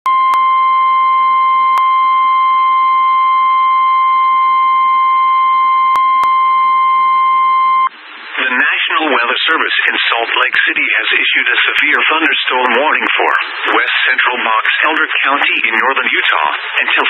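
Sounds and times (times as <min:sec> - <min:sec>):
steady alarm tone: 0:00.2 - 0:07.9.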